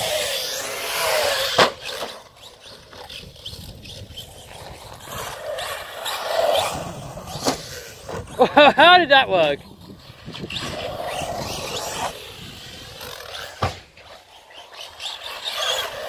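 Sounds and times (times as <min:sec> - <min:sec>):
toy car drivetrain whirring: 0:00.0 - 0:08.5, 0:09.2 - 0:16.0
toy car thud on concrete: 0:00.5 - 0:02.3, 0:13.0 - 0:13.9.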